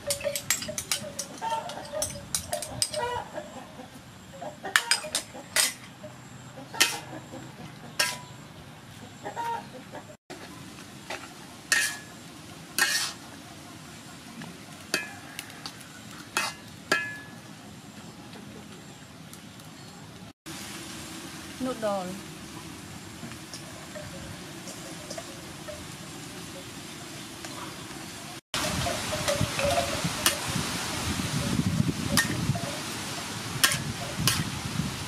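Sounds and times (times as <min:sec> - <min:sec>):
metal spatula scraping a wok: 0:00.0 - 0:03.2, 0:04.7 - 0:06.0, 0:06.7 - 0:07.4, 0:08.0 - 0:08.4, 0:11.1 - 0:12.2, 0:12.8 - 0:13.4, 0:14.9 - 0:17.4, 0:23.3 - 0:26.2, 0:33.6 - 0:34.6
hen clucking: 0:01.0 - 0:10.2
food sizzling: 0:10.3 - 0:17.4, 0:20.5 - 0:35.0.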